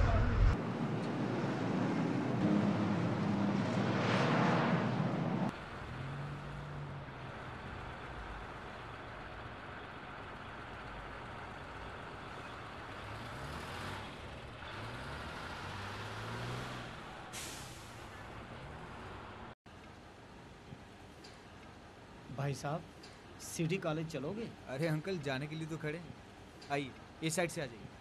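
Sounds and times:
bus engine revving: 0.0 - 19.6
road traffic: 0.0 - 28.0.

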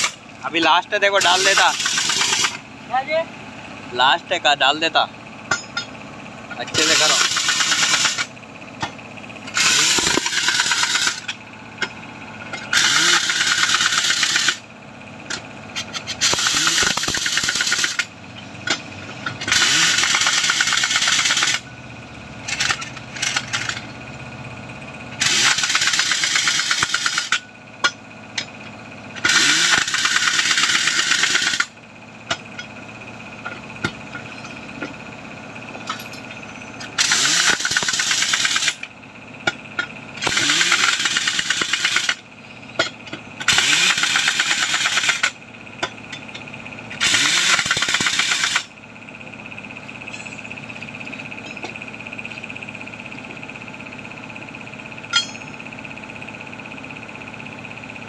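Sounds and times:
pneumatic impact wrench hammering: 0.0 - 2.7, 5.5 - 14.7, 15.3 - 21.7, 22.4 - 23.9, 25.2 - 32.8, 33.4 - 35.0, 35.8 - 48.8, 50.0 - 52.5, 55.0 - 55.7
engine running: 0.0 - 58.0.

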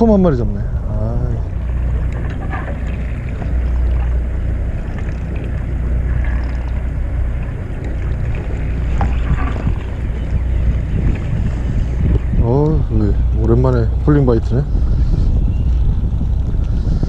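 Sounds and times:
boat engine humming: 0.0 - 17.0
wind buffeting microphone: 0.0 - 17.0.

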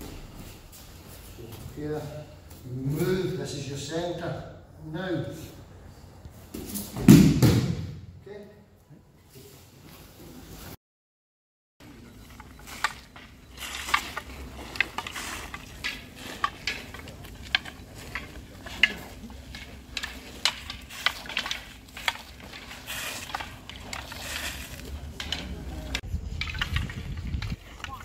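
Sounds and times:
wooden staffs clacking: 11.8 - 28.0.

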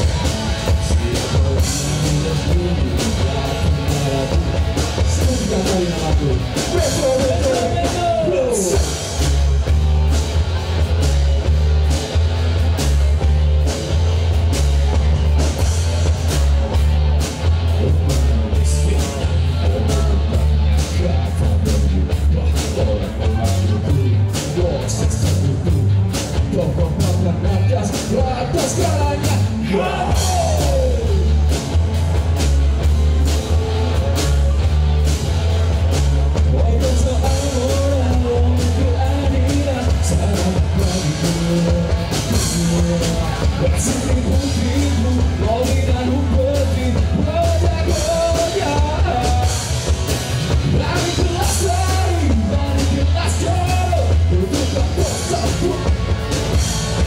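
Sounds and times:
man singing: 0.0 - 9.2, 17.6 - 31.6, 36.4 - 49.9, 50.5 - 57.0
drum kit: 0.0 - 57.0
electric guitars: 0.0 - 57.0.

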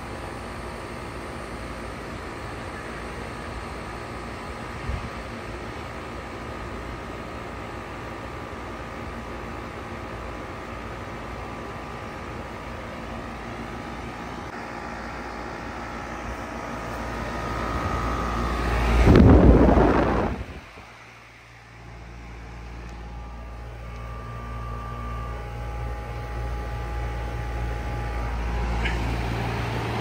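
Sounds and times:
heat pump whirring and humming: 0.0 - 30.0
fan air rushing across microphone: 3.5 - 7.1, 11.6 - 30.0.

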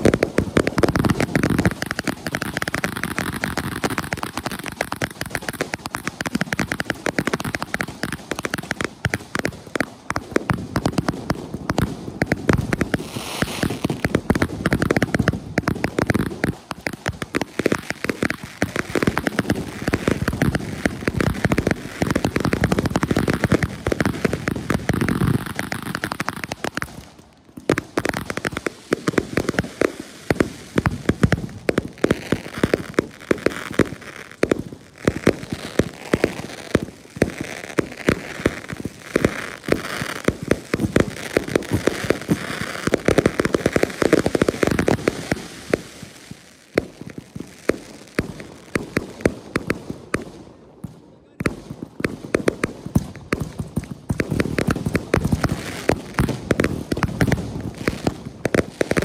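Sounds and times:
fireworks banging: 0.0 - 59.0
fireworks crackling: 0.0 - 59.0.

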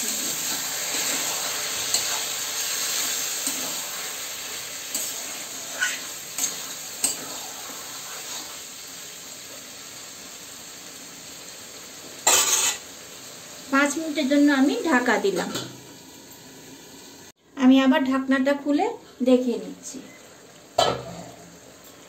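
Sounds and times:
meat sizzling in a pan: 0.0 - 17.4, 18.5 - 22.0
metal spatula scraping pan: 4.9 - 8.6, 12.2 - 12.8.

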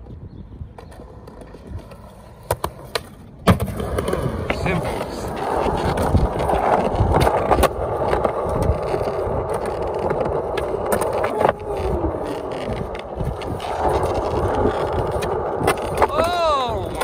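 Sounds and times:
skateboard wheels rolling on concrete: 0.0 - 17.0
skateboard popping and landing clacks: 0.7 - 17.0.

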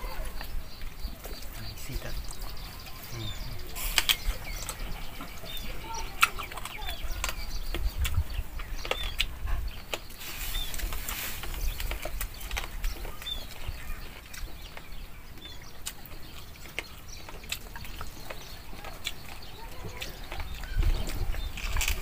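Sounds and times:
chewing: 0.0 - 22.0
sharp mouth clicks: 5.6 - 10.2.

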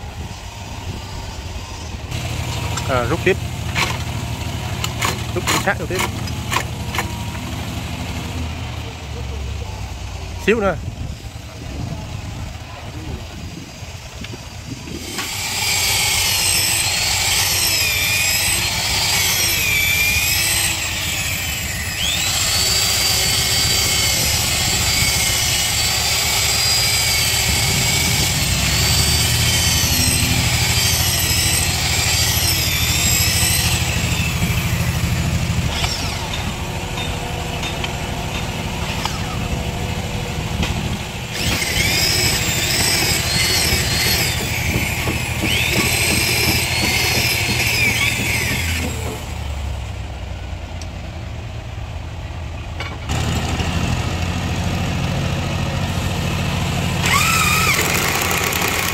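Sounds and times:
electric drill driving screws: 4.8 - 7.1, 15.0 - 37.1, 41.3 - 49.3, 57.0 - 58.9.

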